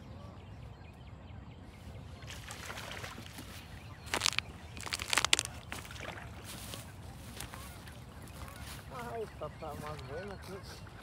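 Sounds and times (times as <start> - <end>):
fish splashing in water: 2.3 - 6.6.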